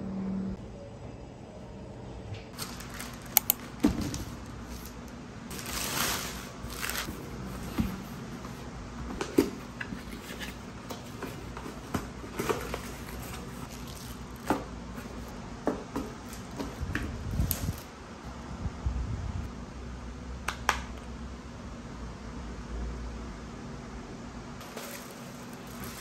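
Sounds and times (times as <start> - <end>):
low room hum: 0.0 - 26.0.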